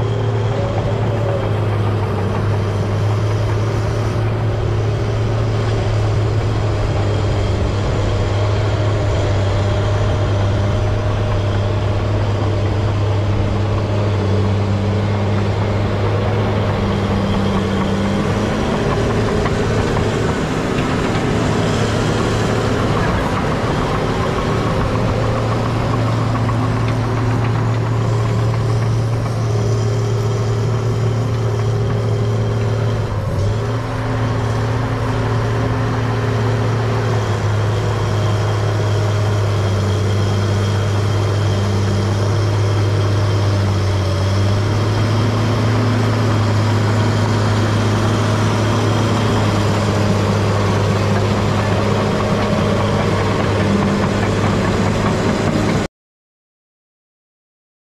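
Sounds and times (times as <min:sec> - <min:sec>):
bulldozer diesel engine running: 0:00.0 - 0:55.9.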